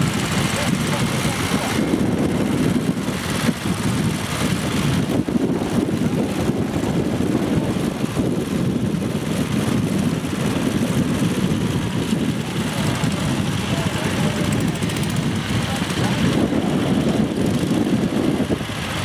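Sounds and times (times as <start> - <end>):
walking tractor engine running: 0.0 - 19.0.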